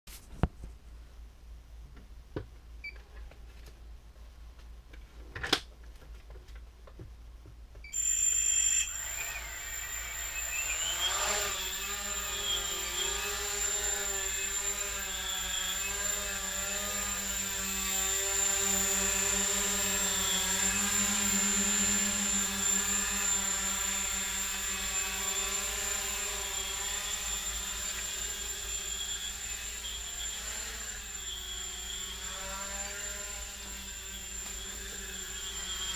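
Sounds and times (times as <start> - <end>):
drone motors buzzing whine: 7.9 - 35.9.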